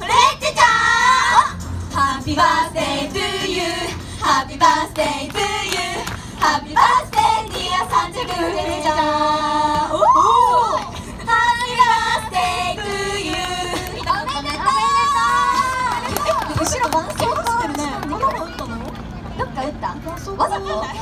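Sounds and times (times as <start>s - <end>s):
group singing pop song: 0.0s - 16.5s.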